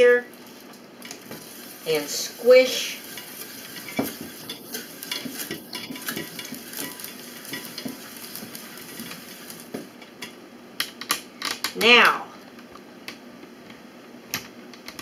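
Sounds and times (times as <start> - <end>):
pestle scraping metal sieve: 1.4 - 9.8.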